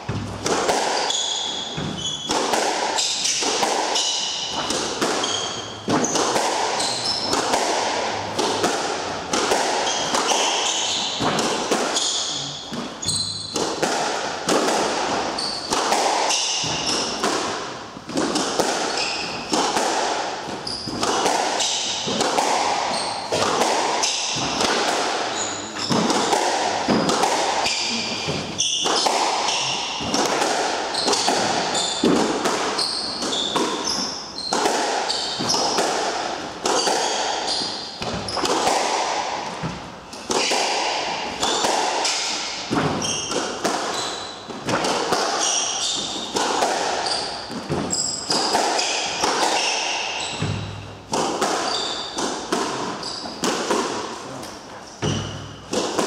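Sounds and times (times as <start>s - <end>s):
squash ball hitting rackets and walls: 0.0s - 56.0s
shoes squeaking on wooden floor: 1.0s - 8.7s, 9.8s - 13.6s, 15.2s - 17.1s, 20.4s - 22.2s, 25.3s - 26.2s, 30.9s - 32.1s, 32.8s - 35.8s, 42.9s - 44.6s, 45.4s - 46.4s, 47.0s - 48.6s, 51.6s - 52.3s, 52.9s - 53.4s.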